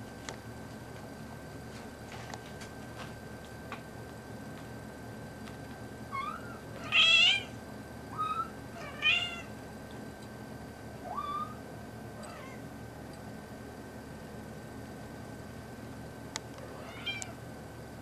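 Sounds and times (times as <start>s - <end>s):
kittens mewing: 8.2s - 9.5s, 11.0s - 11.6s.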